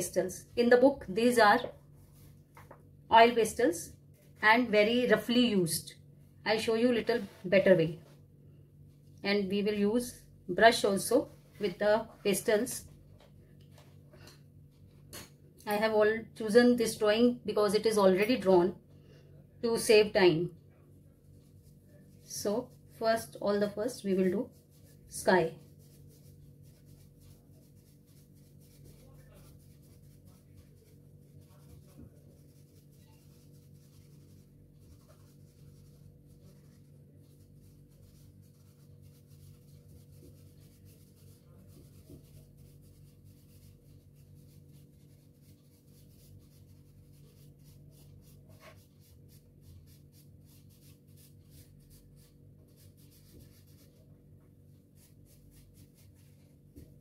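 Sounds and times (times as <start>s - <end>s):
pastel scratching on paper: 0.0s - 2.6s, 21.2s - 57.0s
steady low hum: 0.0s - 57.0s.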